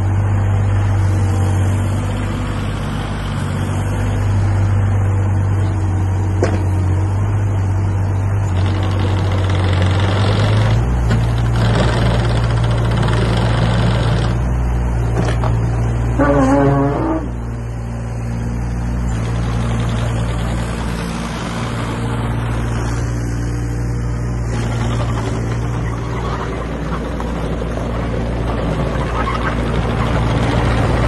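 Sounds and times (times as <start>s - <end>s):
excavator diesel engine running: 0.0s - 31.0s
hydraulics working: 6.3s - 31.0s
short squeal: 16.1s - 17.5s.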